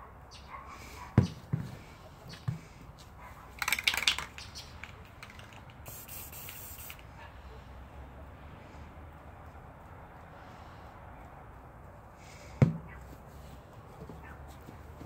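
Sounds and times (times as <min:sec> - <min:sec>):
aerosol spray can hissing: 0:05.4 - 0:07.0.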